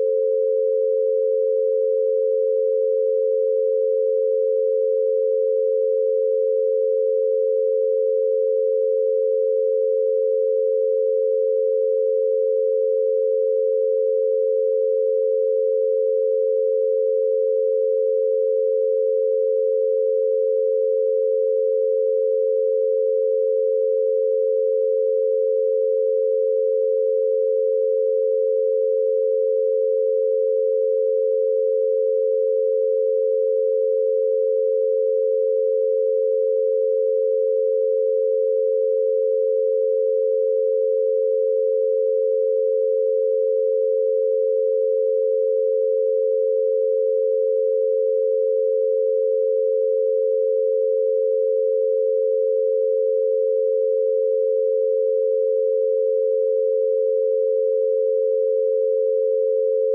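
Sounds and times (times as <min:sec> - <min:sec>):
two steady pure tones: 0:00.0 - 0:59.9.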